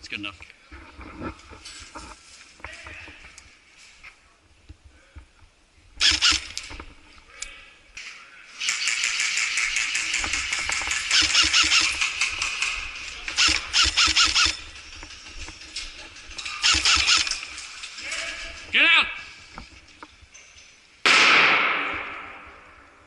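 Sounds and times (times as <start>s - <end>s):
electric rifles firing bursts: 6.0s - 6.6s, 8.6s - 15.2s, 16.4s - 17.6s.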